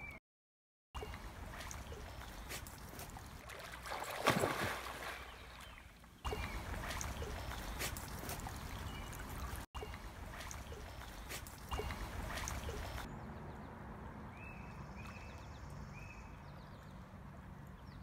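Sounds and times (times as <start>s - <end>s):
dog splashing in water: 1.1s - 13.1s.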